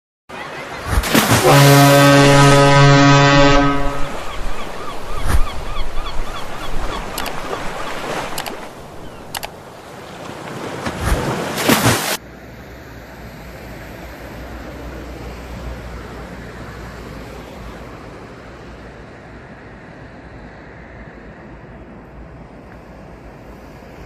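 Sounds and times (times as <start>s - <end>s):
sea waves washing: 0.3s - 24.0s
bird calls: 3.6s - 9.5s
sharp clicks: 7.0s - 7.6s, 8.2s - 9.6s.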